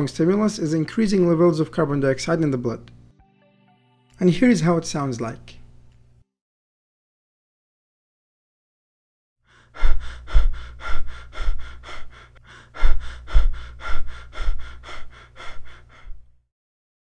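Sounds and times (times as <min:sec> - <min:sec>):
rapid breathing: 0:09.5 - 0:16.4.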